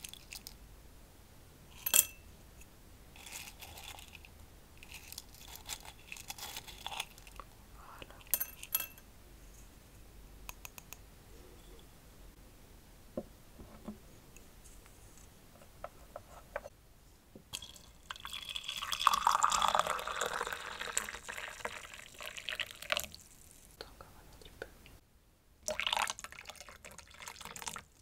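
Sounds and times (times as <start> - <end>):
spices rattling in glass jar: 0.0 - 0.6, 3.2 - 7.4, 8.3 - 9.0
spices dropping into teacup: 8.2 - 9.0.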